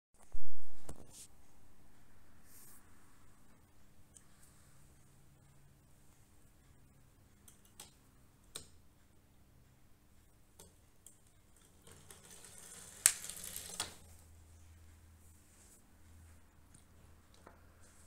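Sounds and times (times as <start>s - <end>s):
toy car rolling on glass: 11.5s - 14.2s.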